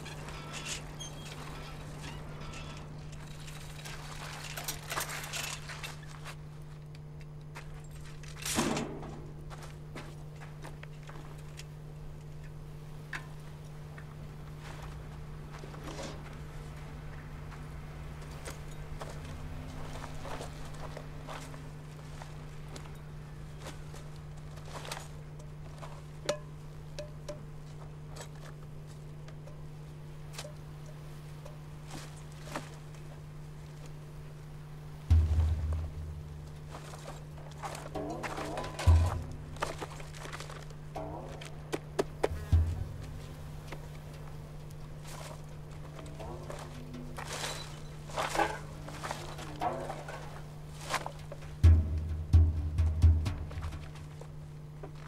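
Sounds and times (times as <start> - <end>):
steady low hum: 0.0 - 55.0
rubbish crackling as handled: 35.1 - 52.1.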